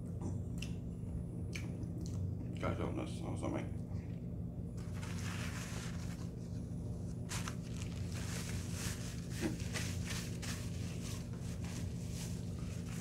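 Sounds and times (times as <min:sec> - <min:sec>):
paper wrapper crumpling: 0:04.8 - 0:06.4, 0:07.3 - 0:13.0.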